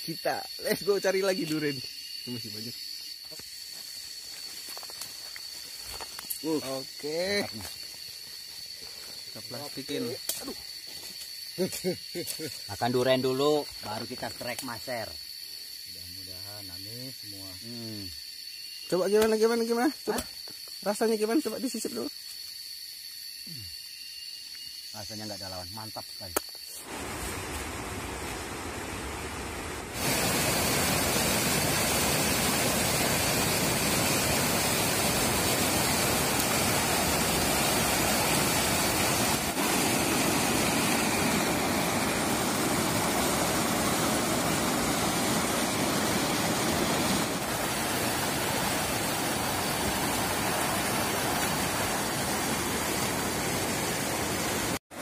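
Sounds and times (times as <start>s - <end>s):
water rushing over boulders: 26.9s - 55.0s.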